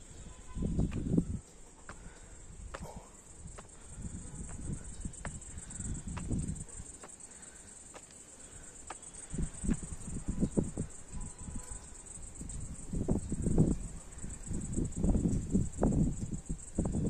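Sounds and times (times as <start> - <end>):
wind rumbling on microphone: 0.0 - 7.0, 8.8 - 17.0
insects droning: 0.0 - 17.0
footsteps on stone steps: 0.7 - 10.1.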